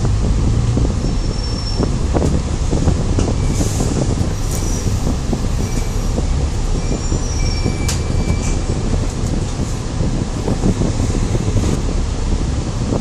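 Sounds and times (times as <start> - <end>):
bus body rattling: 0.0 - 13.0
bus engine rumble: 0.0 - 13.0
thin high squeals: 1.1 - 1.9, 6.8 - 8.6.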